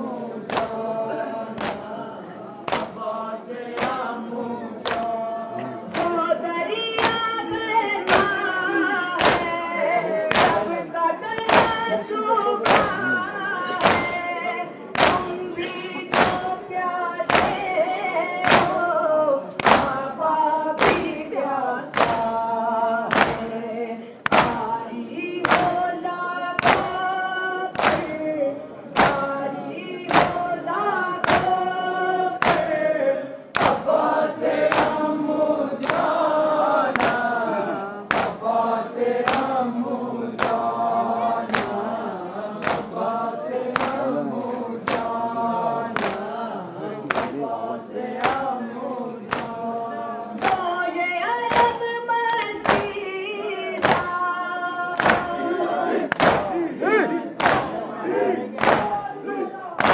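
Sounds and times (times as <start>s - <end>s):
men chanting in unison: 0.0s - 6.5s, 7.4s - 25.9s, 27.7s - 50.7s, 54.8s - 59.9s
hands beating on chests: 1.6s - 3.1s, 3.7s - 4.1s, 4.8s - 5.2s, 5.8s - 6.4s, 7.0s - 7.4s, 8.0s - 11.9s, 12.6s - 18.9s, 19.5s - 22.4s, 23.0s - 23.6s, 24.2s - 24.8s, 25.4s - 28.2s, 29.0s - 29.4s, 30.0s - 32.9s, 33.5s - 33.9s, 34.6s - 35.1s, 35.8s - 36.2s, 36.8s - 37.3s, 38.1s - 38.4s, 39.2s - 39.6s, 41.4s - 42.0s, 42.6s - 43.0s, 43.6s - 44.1s, 44.8s - 45.2s, 45.9s - 46.3s, 47.0s - 47.4s, 48.1s - 48.5s, 49.2s - 49.6s, 50.4s - 50.7s, 51.4s - 53.1s, 53.8s - 54.2s, 55.0s - 55.4s, 56.0s - 57.9s, 58.6s - 59.1s.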